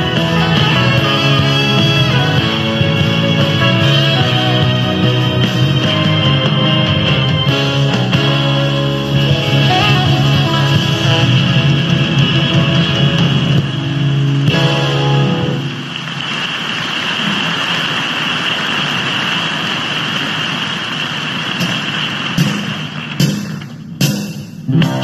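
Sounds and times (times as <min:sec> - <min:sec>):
live band held chords: 0:00.0 - 0:16.4, 0:20.8 - 0:25.0
crowd cheering and applause: 0:15.5 - 0:23.7.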